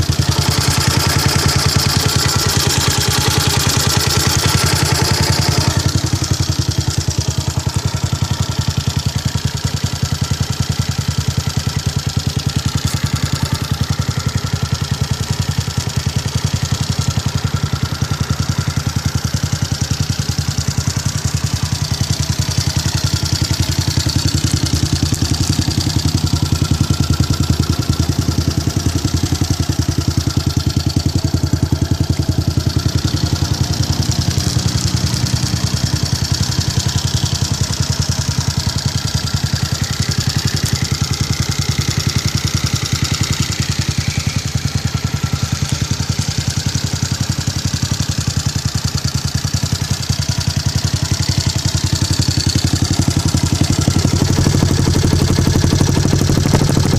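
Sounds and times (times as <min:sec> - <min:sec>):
motorcycle engine idling: 0:00.0 - 0:56.9.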